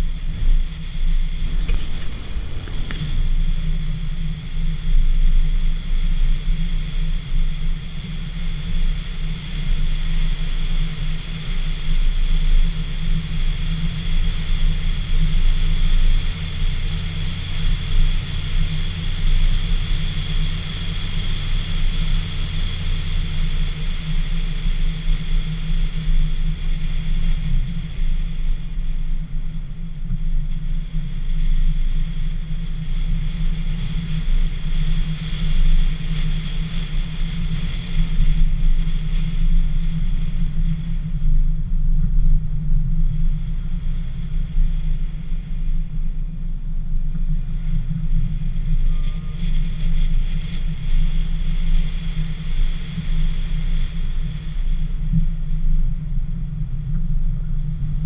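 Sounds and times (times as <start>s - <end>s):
wind buffeting camera: 0.0s - 6.0s
faint high whine: 0.0s - 6.3s, 10.5s - 58.0s
car road and engine noise: 0.0s - 58.0s.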